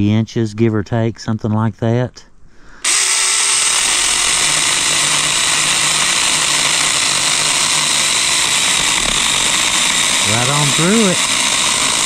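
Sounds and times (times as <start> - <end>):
chainsaw cutting through branch: 2.8 - 12.0.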